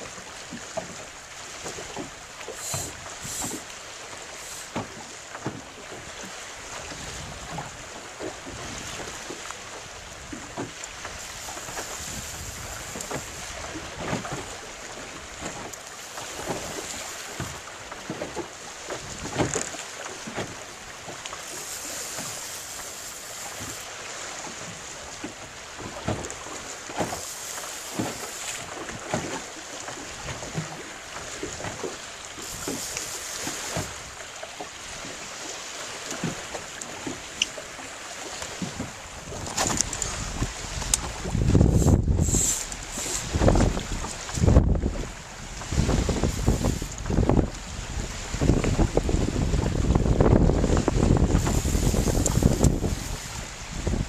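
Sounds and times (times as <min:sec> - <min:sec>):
water slapping boat hull: 0:00.0 - 0:54.0
wind buffeting microphone: 0:09.8 - 0:14.6, 0:38.5 - 0:54.0.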